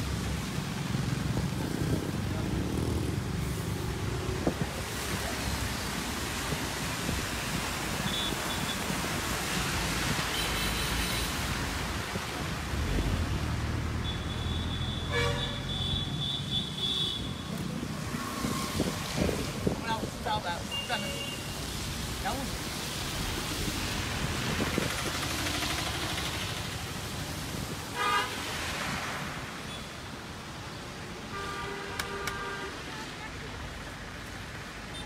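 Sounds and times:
traffic rumble on wet road: 0.0 - 35.0
car horns tooting: 14.0 - 17.5, 28.0 - 28.4.

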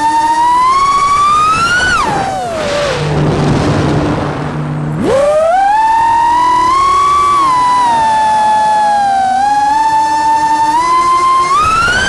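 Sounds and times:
quadcopter motors whining: 0.0 - 3.3, 4.6 - 12.0
rush of air: 2.5 - 5.0.

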